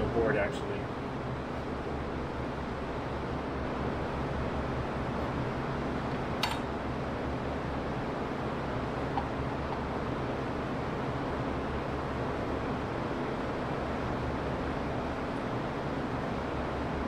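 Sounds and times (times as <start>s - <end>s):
machine hum: 0.0s - 17.0s
sharp clicks: 6.4s - 6.7s.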